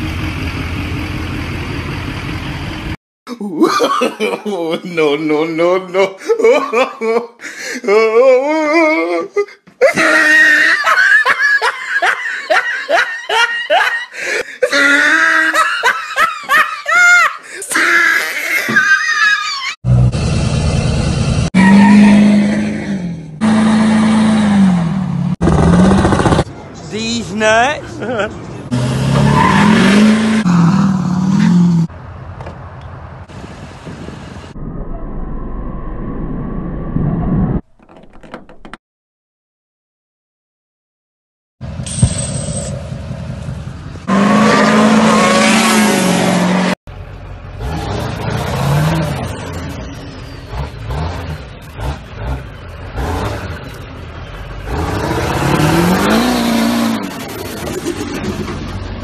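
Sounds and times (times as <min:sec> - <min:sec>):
truck approaching with low rumble: 0:00.0 - 0:03.0, 0:19.9 - 0:26.8, 0:41.6 - 0:44.4, 0:46.1 - 0:59.0
people laughing: 0:03.3 - 0:19.8, 0:27.8 - 0:28.6
truck engine revving: 0:19.8 - 0:26.6, 0:28.6 - 0:31.9, 0:41.6 - 0:59.0.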